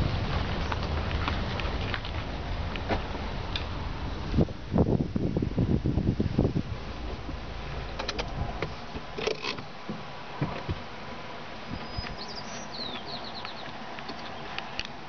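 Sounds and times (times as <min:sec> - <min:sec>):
car rumble: 0:00.0 - 0:15.0
high falling bird chirps: 0:11.7 - 0:13.7.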